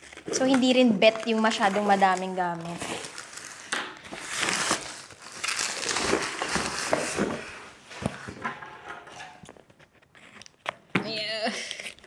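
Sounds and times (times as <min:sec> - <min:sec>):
plastic and bubble wrap crinkling: 0:00.0 - 0:08.4.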